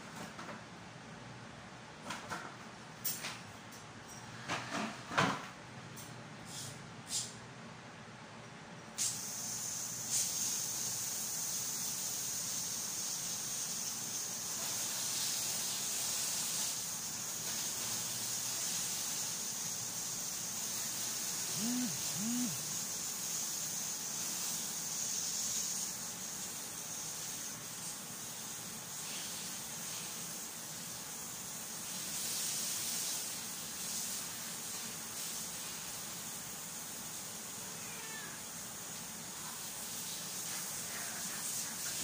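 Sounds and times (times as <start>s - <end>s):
steady high-pitched hiss: 6.4s - 42.0s
low rising and falling calls: 21.5s - 22.8s.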